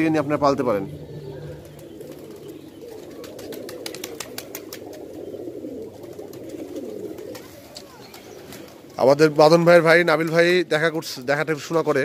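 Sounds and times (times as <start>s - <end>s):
pigeons cooing: 0.0s - 10.4s
wings flapping: 1.3s - 9.3s.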